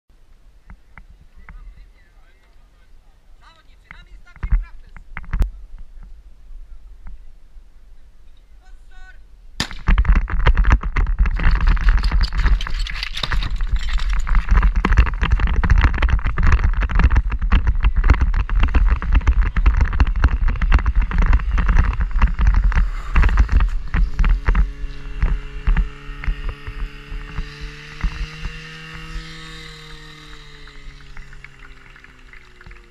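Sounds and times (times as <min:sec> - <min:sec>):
sharp crack: 0:09.6 - 0:32.9
wind rushing on microphone: 0:09.9 - 0:31.5
pump engine revving: 0:11.3 - 0:32.9.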